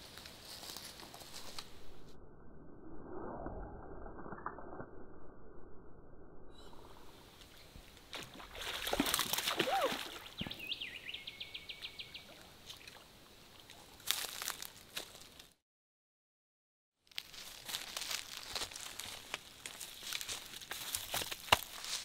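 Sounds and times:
fish flapping on muddy bank: 0:08.1 - 0:10.6
fish splashing at water surface: 0:08.2 - 0:10.5.

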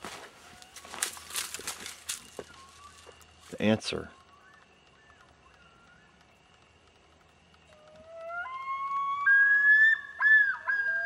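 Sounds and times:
loon calling: 0:07.8 - 0:11.0.

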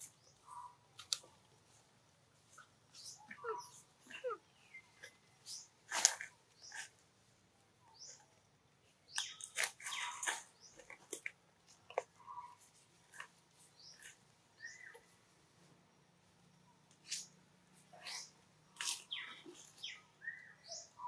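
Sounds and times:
baby monkey squeaking: 0:03.0 - 0:04.4.

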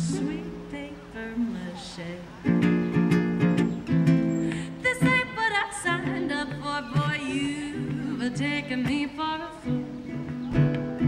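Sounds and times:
woman singing: 0:00.0 - 0:02.6, 0:04.4 - 0:10.4
ukulele: 0:00.0 - 0:11.0.

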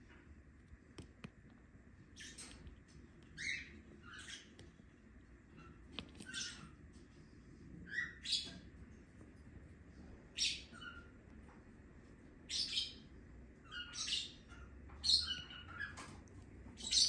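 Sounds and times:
lovebird chirping: 0:07.8 - 0:08.6, 0:13.6 - 0:16.0, 0:16.8 - 0:17.0.

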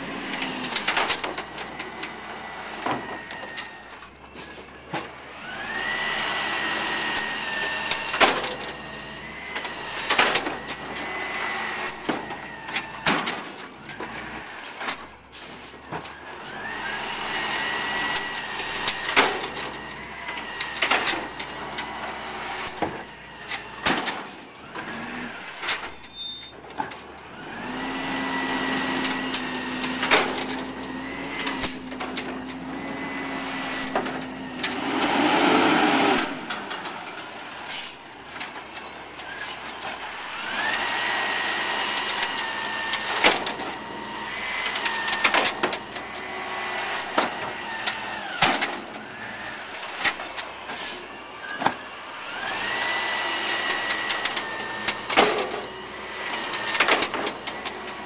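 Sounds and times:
truck engine revving: 0:00.0 - 0:03.3, 0:27.2 - 0:38.1
hydraulic whine: 0:00.0 - 0:13.1, 0:16.2 - 0:58.0
carts and arm knocking and banging: 0:26.7 - 0:37.0.

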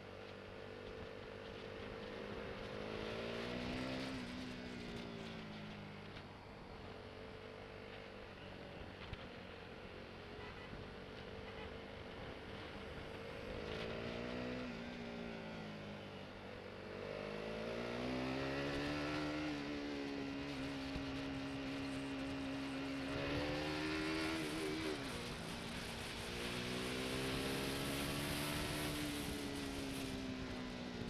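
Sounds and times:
motorcycle engine revving: 0:01.5 - 0:05.7, 0:16.8 - 0:31.0.

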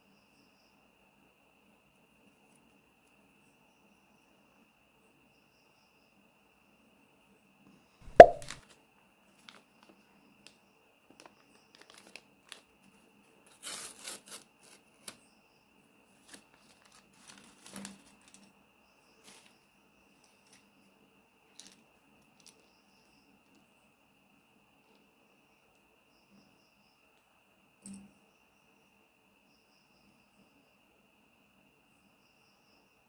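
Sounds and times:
sharp knock: 0:08.1 - 0:08.6
paper crinkling: 0:11.2 - 0:12.6, 0:16.2 - 0:18.4
paper rustling and tearing: 0:11.8 - 0:12.6, 0:13.5 - 0:15.2, 0:16.2 - 0:18.4.

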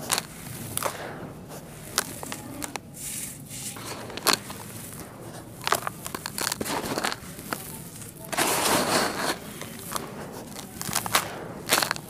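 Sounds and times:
dirt crumbling into plastic tub: 0:00.0 - 0:12.0.

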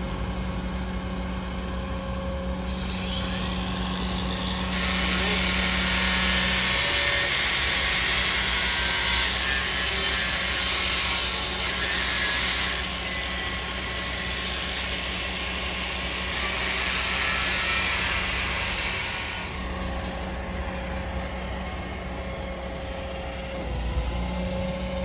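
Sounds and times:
power tool grinding metal: 0:02.6 - 0:19.7.

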